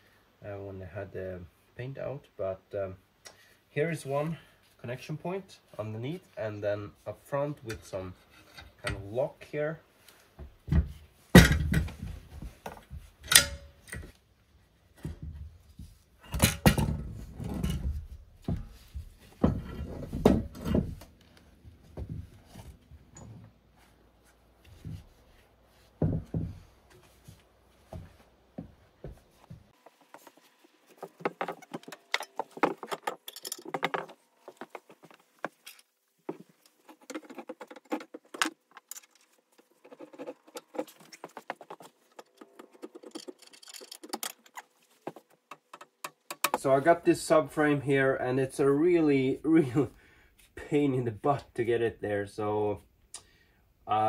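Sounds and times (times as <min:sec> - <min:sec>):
metal frame clanking: 0:13.2 - 0:14.1, 0:16.2 - 0:21.1, 0:31.0 - 0:34.9, 0:36.9 - 0:46.7
light clicking and rattling: 0:36.6 - 0:46.7.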